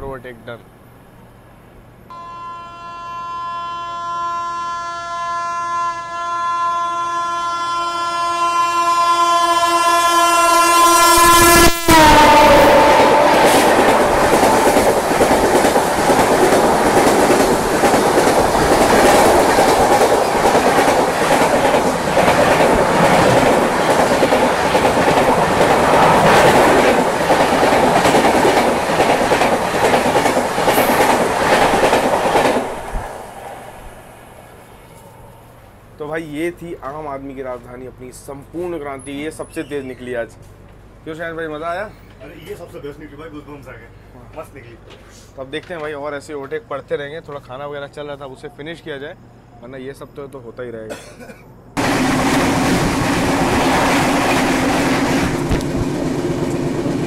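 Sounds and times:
locomotive horn blast: 2.1 - 14.8
train wheels clattering over rail joints: 13.6 - 32.9.

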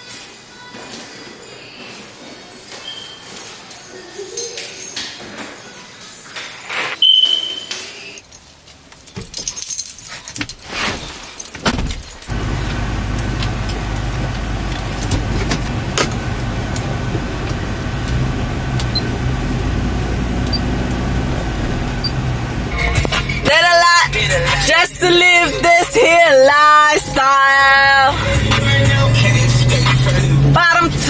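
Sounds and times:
keys jangling and clicking: 3.2 - 6.7, 8.1 - 12.4
short beep: 7.0 - 8.2
car engine idling inside cab: 11.7 - 26.3, 27.6 - 31.0.

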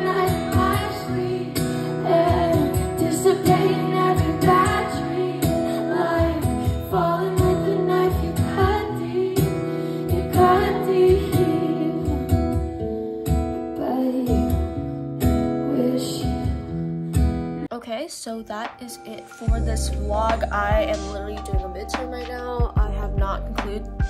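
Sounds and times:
woman singing: 0.0 - 12.6, 13.6 - 14.7, 15.5 - 16.7, 18.5 - 24.0
strummed acoustic guitar: 0.0 - 17.7.

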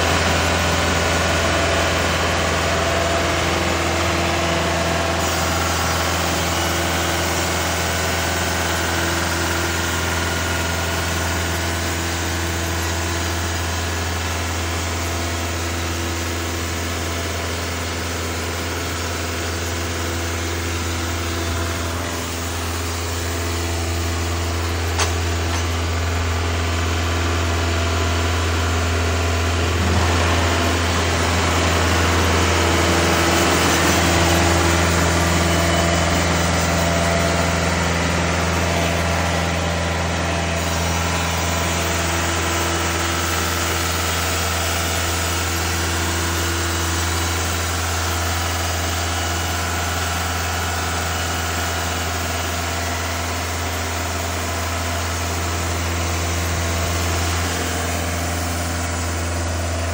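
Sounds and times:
band saw cutting wood: 29.7 - 36.8.

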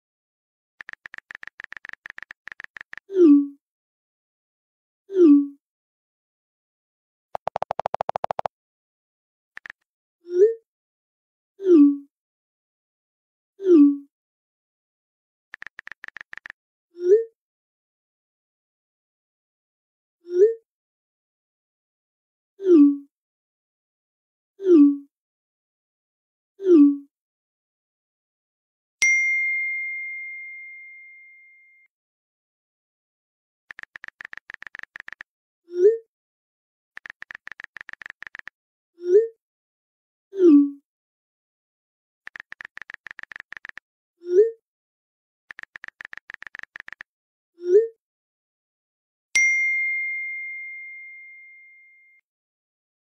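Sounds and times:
keyboard tap clicks: 0.8 - 3.0, 7.4 - 8.5, 9.6 - 9.8, 15.6 - 16.5, 33.7 - 35.2, 37.0 - 38.5, 42.3 - 43.8, 45.5 - 47.0
pitched message blips: 7.4 - 8.5
bell-like message chime: 29.0 - 31.8, 49.4 - 52.2.

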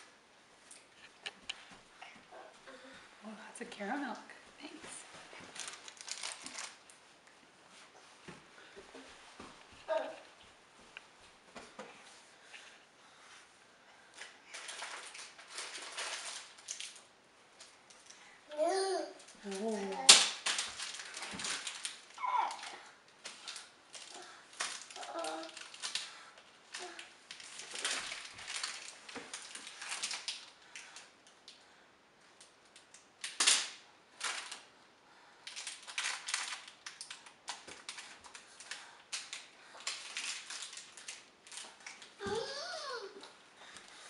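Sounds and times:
plastic wrappers crinkling: 4.6 - 7.3, 14.0 - 31.6, 32.3 - 34.8, 35.4 - 44.0.

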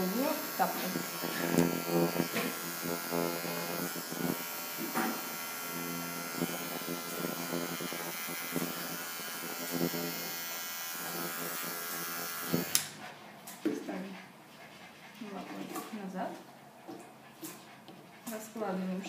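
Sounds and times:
electric clipper buzzing: 0.0 - 13.0.

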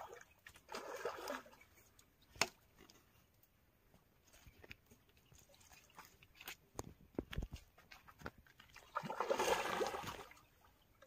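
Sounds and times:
river water splashing: 0.0 - 1.9, 8.6 - 11.0.

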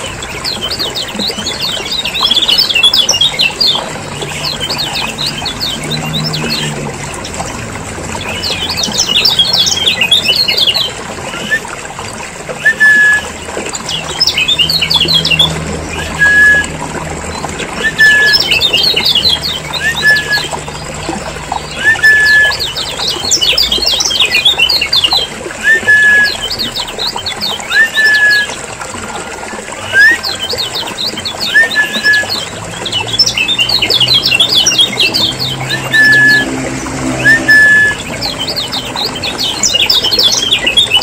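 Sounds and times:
bird rising whistle: 16.0 - 16.7, 19.8 - 20.5, 25.6 - 26.4, 35.7 - 36.5, 37.2 - 38.0.

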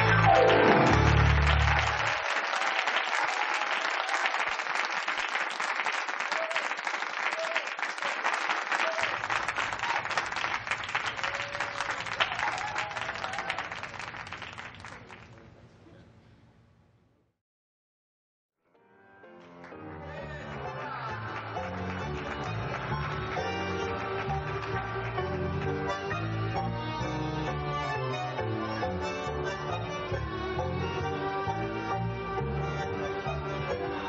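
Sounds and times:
bass-heavy music: 0.0 - 2.1, 20.0 - 34.0
audience applauding: 0.0 - 15.4, 19.4 - 28.2.

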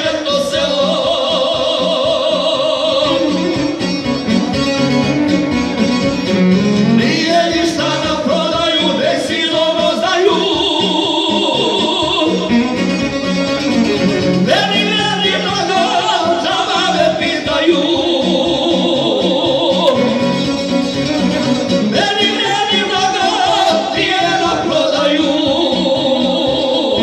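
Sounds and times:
two men singing: 0.0 - 3.8, 6.8 - 12.6, 14.4 - 20.5, 21.5 - 27.0
bowed violin: 0.0 - 27.0
plucked lute: 3.0 - 9.7, 18.6 - 27.0.

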